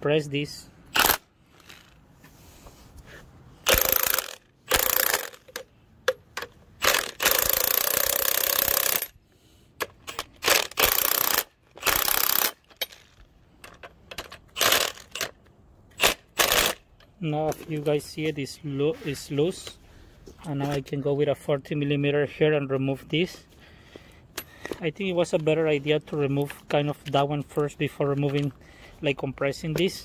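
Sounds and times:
impact wrench hammering: 0:03.6 - 0:09.1.

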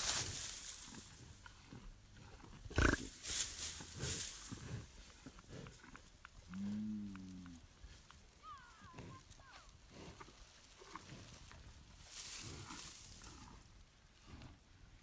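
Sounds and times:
rustling: 0:00.0 - 0:14.6
cow mooing: 0:06.5 - 0:07.6.

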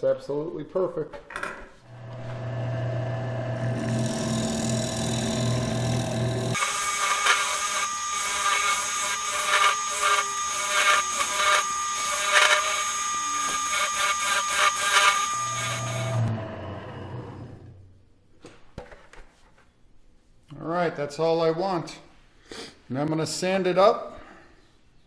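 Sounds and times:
lathe motor hum: 0:01.9 - 0:17.7
chisel scraping wood on lathe: 0:03.6 - 0:16.3.

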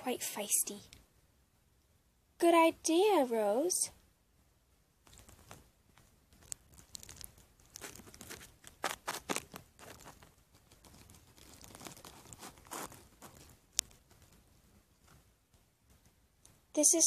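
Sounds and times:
plastic toys rustling: 0:05.0 - 0:15.3.

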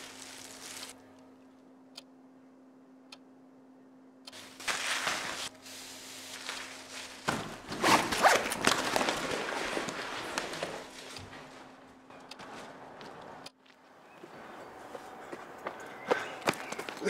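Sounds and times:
plastic bag rustling: 0:00.0 - 0:01.0, 0:04.4 - 0:11.8
bag zipper closing: 0:07.7 - 0:10.9.

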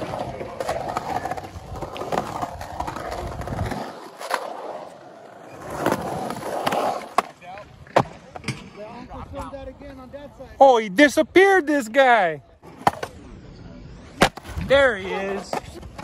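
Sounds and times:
skateboard clacks: 0:00.0 - 0:04.4
skateboard wheels rolling on concrete: 0:00.0 - 0:16.0.

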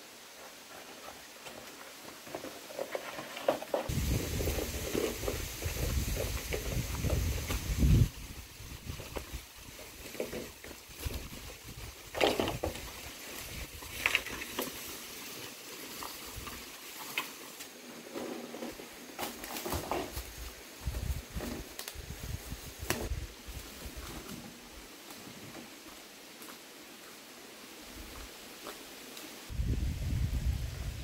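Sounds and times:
bamboo poles dragged on dry leaves: 0:00.3 - 0:26.5
footsteps: 0:27.9 - 0:29.3.

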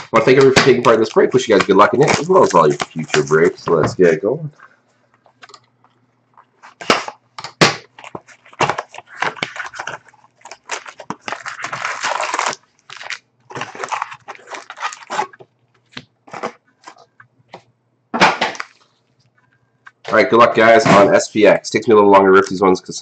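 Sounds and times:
foil packs crinkling: 0:00.1 - 0:03.7, 0:07.8 - 0:17.1, 0:18.5 - 0:19.0
cardboard box tearing: 0:08.0 - 0:15.4.

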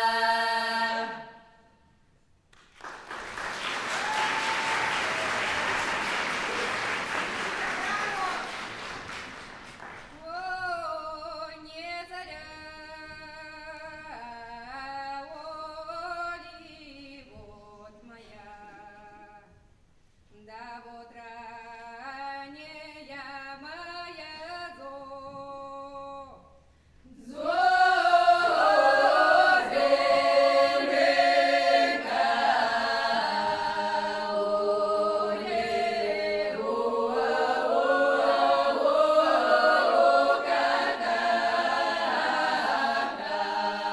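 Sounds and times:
folk choir singing a cappella: 0:00.0 - 0:01.8, 0:27.0 - 0:43.9.

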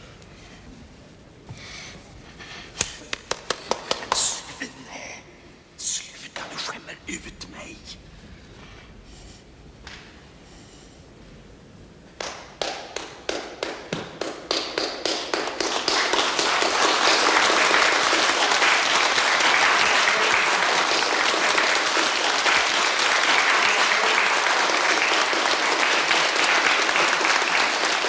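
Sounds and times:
audience applauding: 0:03.1 - 0:04.5, 0:12.2 - 0:28.0.

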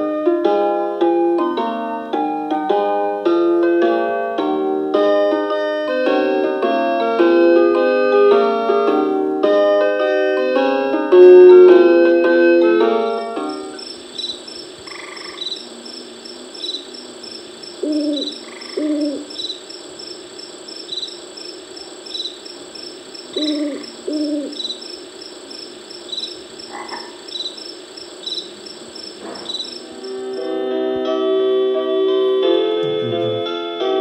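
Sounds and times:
frog croaks: 0:13.2 - 0:30.5.

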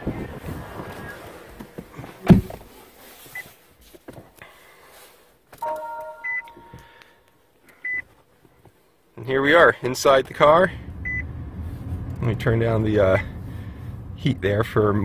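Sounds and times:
car door shutting: 0:01.6 - 0:02.7
electronic chime: 0:05.6 - 0:07.0.

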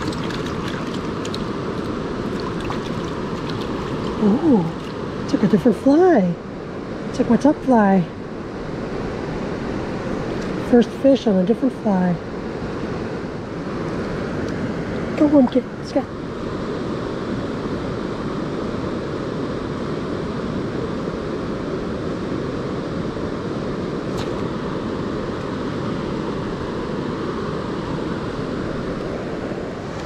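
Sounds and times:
river water rushing: 0:00.0 - 0:06.1.

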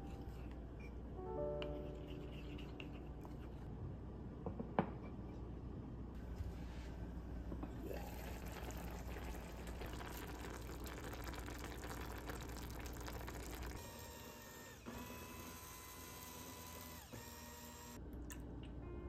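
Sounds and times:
pot bubbling with crackles: 0:07.8 - 0:13.8.

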